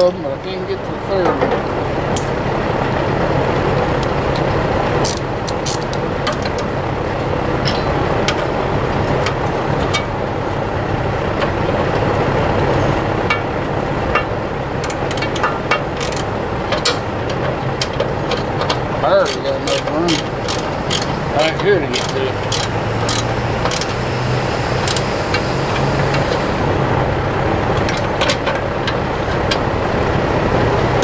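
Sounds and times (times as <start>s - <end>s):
steady low drone: 1.6s - 31.0s
wrench and socket clicking: 5.0s - 6.4s, 14.8s - 17.0s, 19.2s - 21.1s, 22.0s - 23.9s, 24.8s - 25.1s.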